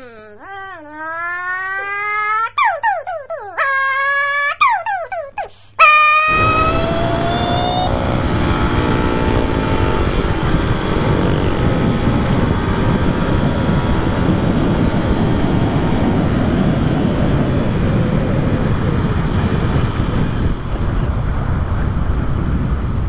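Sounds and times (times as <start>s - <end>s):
motorcycle engine running: 6.3s - 23.0s
wind on microphone: 6.3s - 23.0s.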